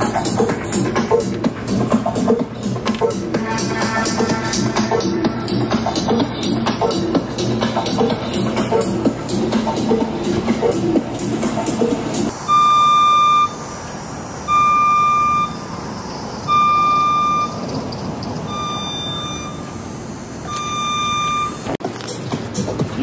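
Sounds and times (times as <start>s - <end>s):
electronic music: 0.0s - 15.8s, 21.8s - 23.0s
outdoor background hiss: 0.0s - 21.2s
backup alarm beeping: 11.8s - 13.6s, 14.4s - 15.8s, 16.4s - 17.7s, 18.4s - 21.8s.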